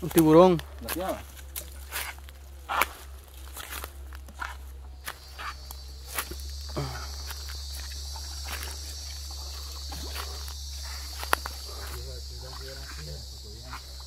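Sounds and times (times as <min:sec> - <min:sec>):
footsteps crunching on dry leaves: 0:00.0 - 0:14.0
high-pitched insect drone: 0:00.0 - 0:14.0.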